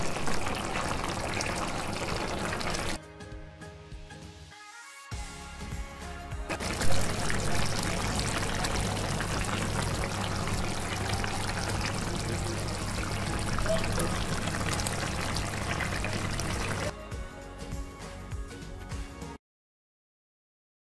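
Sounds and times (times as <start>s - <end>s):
gravy boiling and popping: 0.0s - 3.0s, 6.5s - 16.9s.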